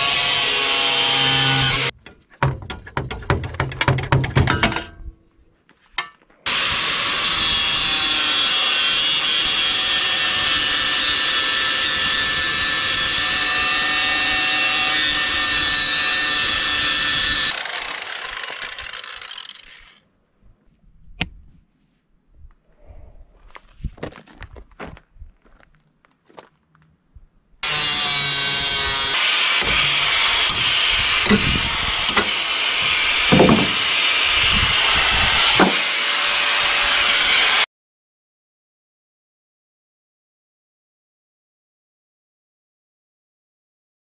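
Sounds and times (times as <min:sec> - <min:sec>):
angle grinder cutting steel: 0:00.0 - 0:01.9, 0:06.5 - 0:20.0, 0:27.6 - 0:37.7.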